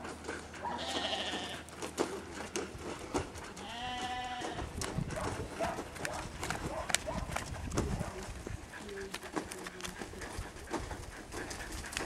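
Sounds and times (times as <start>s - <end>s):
sheep bleating: 0.7s - 1.7s, 3.6s - 4.6s.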